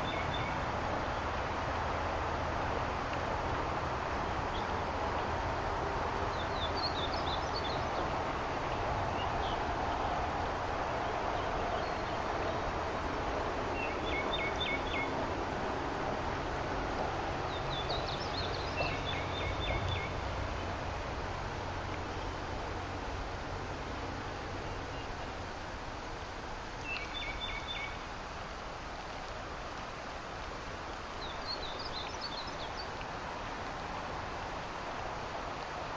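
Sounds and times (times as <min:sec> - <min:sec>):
songbird chirping: 0:00.0 - 0:01.4, 0:04.1 - 0:12.9, 0:13.7 - 0:15.2, 0:17.4 - 0:20.9, 0:26.7 - 0:28.2, 0:30.9 - 0:33.6
steady outdoor rush: 0:00.0 - 0:35.9.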